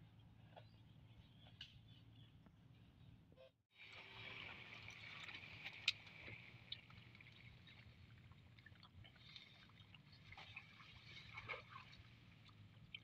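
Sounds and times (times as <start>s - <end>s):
wading through grass and water: 3.8s - 13.0s.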